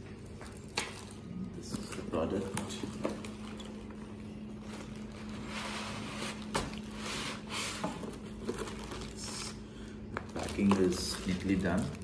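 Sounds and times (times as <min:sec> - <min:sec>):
foam packing rustling and scraping: 0:04.6 - 0:09.4.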